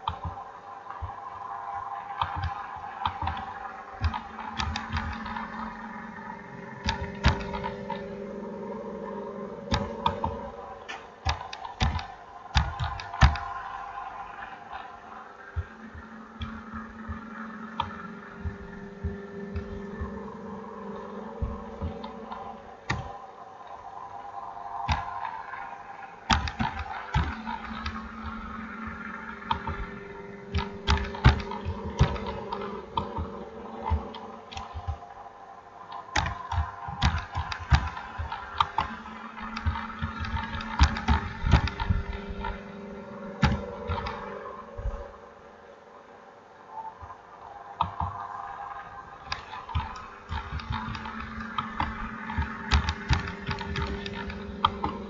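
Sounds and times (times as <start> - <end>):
steady low hum: 0.0 - 55.0
keyboard typing clicks: 2.2 - 6.0, 6.8 - 8.1, 9.6 - 13.8, 20.9 - 23.2, 24.8 - 25.5, 26.3 - 29.9, 30.5 - 35.0, 35.9 - 42.6, 43.4 - 45.1, 49.2 - 55.0.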